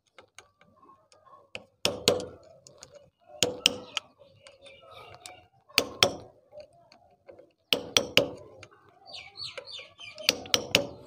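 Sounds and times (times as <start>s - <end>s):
screwdriver tapping metal: 1.6s - 4.0s, 7.7s - 8.7s, 10.2s - 11.0s.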